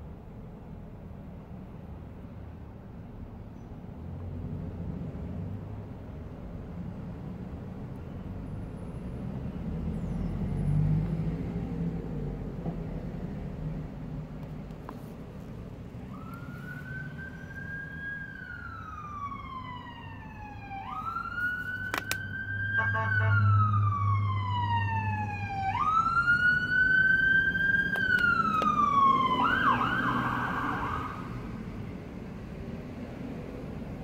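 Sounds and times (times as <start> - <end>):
ambulance siren: 16.0 - 31.6.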